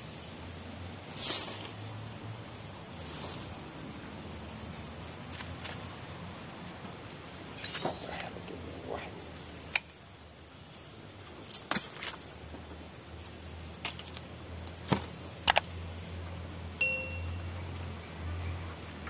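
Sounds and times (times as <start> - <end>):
pliers and wire clicking: 15.5 - 15.7
metallic ding: 16.8 - 17.8.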